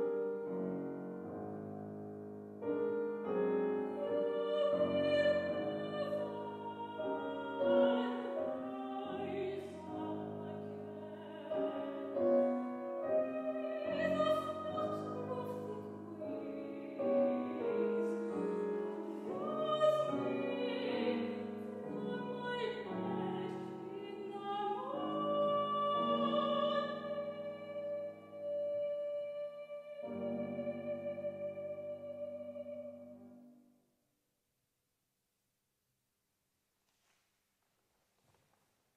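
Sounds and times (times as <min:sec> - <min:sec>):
grand piano accompaniment: 0:00.0 - 0:33.5
soprano singing: 0:02.7 - 0:33.3.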